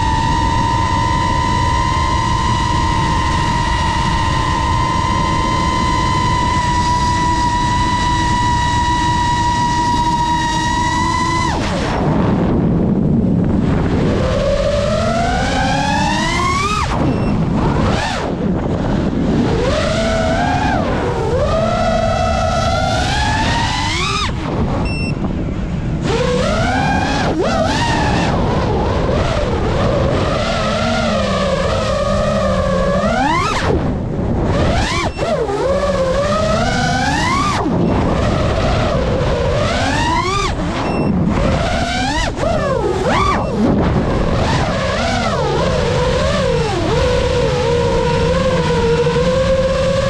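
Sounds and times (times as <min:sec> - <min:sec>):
drone motors whining: 0:00.0 - 0:50.0
rushing airflow: 0:23.2 - 0:50.0.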